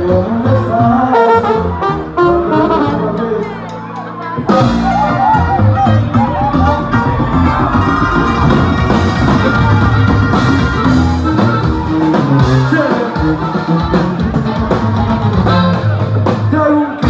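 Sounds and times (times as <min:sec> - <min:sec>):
man singing: 0:00.0 - 0:07.7, 0:12.3 - 0:17.0
guitar: 0:00.0 - 0:17.0
upright bass: 0:00.0 - 0:17.0.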